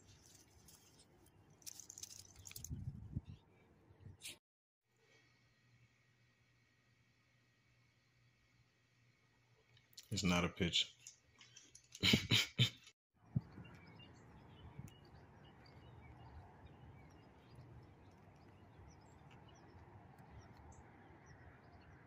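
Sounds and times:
distant birds chirping: 13.2s - 22.0s.

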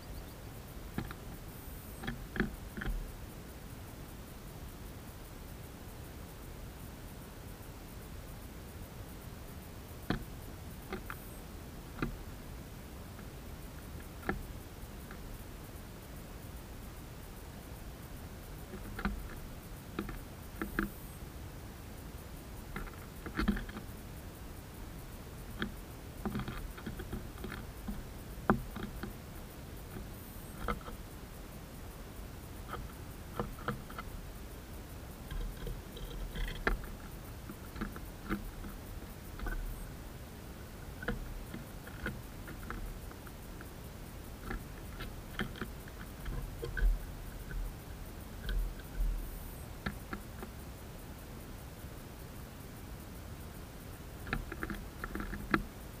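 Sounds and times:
birds pecking on wooden feeder: 0.9s - 3.1s, 13.2s - 15.3s, 18.5s - 21.2s, 22.4s - 31.1s, 32.5s - 50.6s, 54.0s - 56.0s
beaks tapping on wood: 1.0s - 1.3s, 2.0s - 3.0s, 10.9s - 11.3s, 18.6s - 21.0s, 22.7s - 23.9s, 25.5s - 29.2s, 29.9s - 31.0s, 32.6s - 34.2s, 35.2s - 40.0s, 40.8s - 43.8s, 44.4s - 50.6s, 54.2s - 55.7s.

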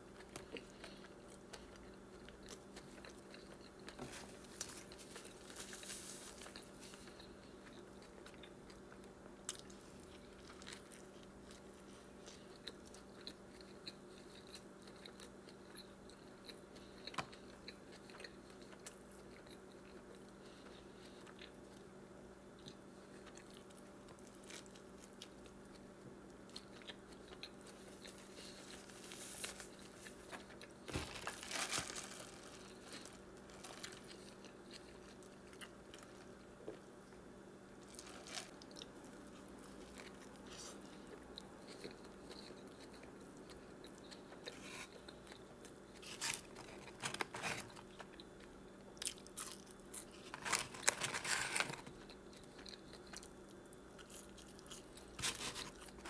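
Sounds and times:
biting and crunching: 22.7s - 36.8s, 37.8s - 56.0s
wet chewing: 26.5s - 36.8s.

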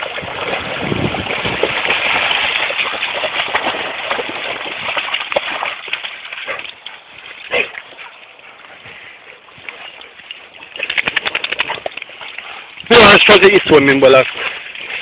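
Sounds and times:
sharp splash: 0.0s - 6.7s, 10.8s - 15.0s
dogs splashing in water: 0.0s - 15.0s.

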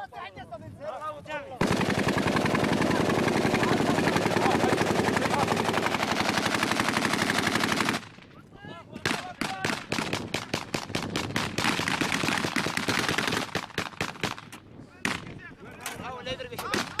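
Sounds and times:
rapid automatic gunfire: 1.6s - 8.2s, 9.0s - 14.4s.

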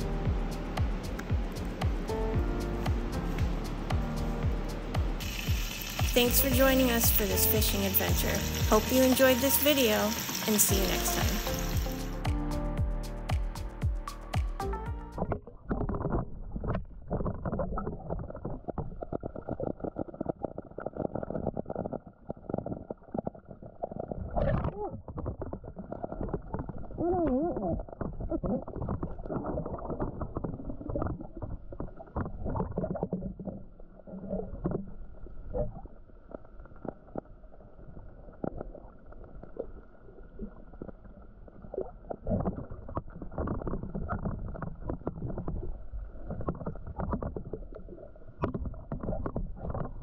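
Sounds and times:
underwater sloshing rumble: 15.2s - 50.0s.

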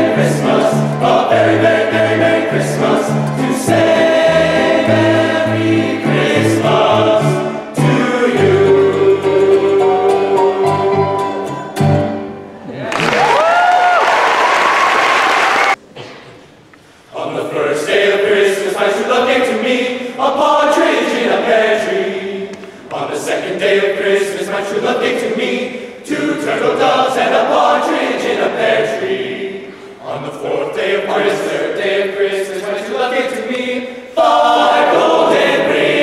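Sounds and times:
men's choir singing a cappella: 0.0s - 11.3s, 17.1s - 36.0s
applause: 12.8s - 15.8s.

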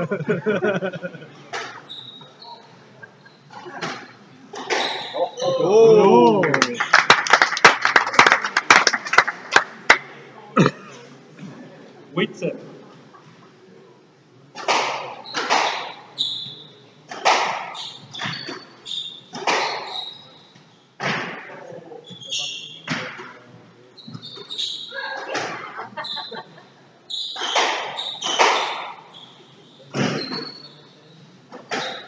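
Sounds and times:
shoes squeaking on wooden floor: 1.6s - 5.6s, 17.7s - 20.8s, 22.0s - 23.1s, 24.0s - 26.5s, 27.1s - 32.0s
squash ball cracking off rackets: 17.1s - 18.6s, 19.3s - 20.0s, 27.4s - 29.0s.

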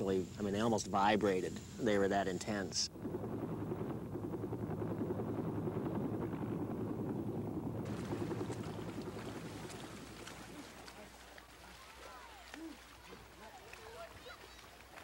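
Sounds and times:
faint outdoor sounds with ticks: 0.0s - 2.9s
aircraft cabin rumble: 2.9s - 10.9s.

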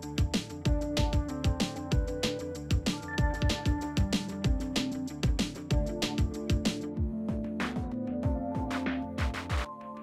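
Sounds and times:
deep kick drums: 0.1s - 9.6s.

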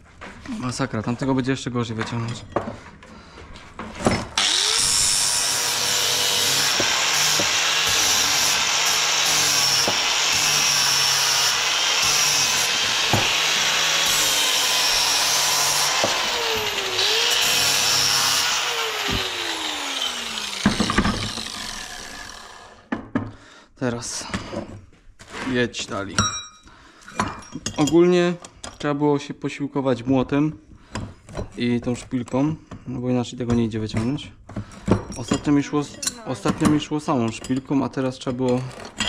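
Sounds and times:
angle grinder grinding metal: 4.4s - 22.9s.

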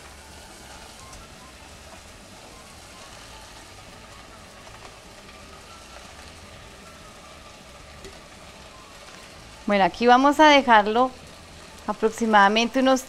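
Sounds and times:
potatoes sizzling in saucepan: 0.0s - 13.0s.

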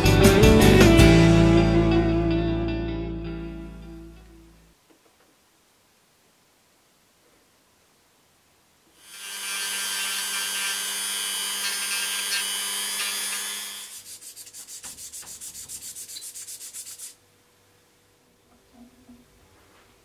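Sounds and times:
rotary tool grinding: 9.0s - 15.2s.

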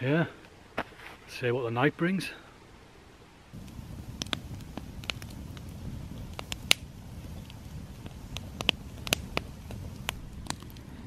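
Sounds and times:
campfire crackling and popping: 3.5s - 11.0s
low steady rumble: 3.6s - 11.0s.

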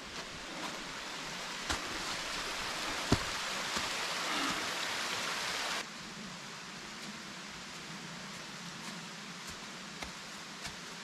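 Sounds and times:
stream water rushing: 0.0s - 5.9s.

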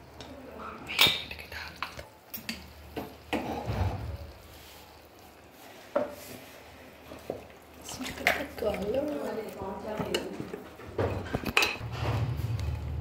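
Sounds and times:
kitchenware knocking and clinking: 9.9s - 11.8s.

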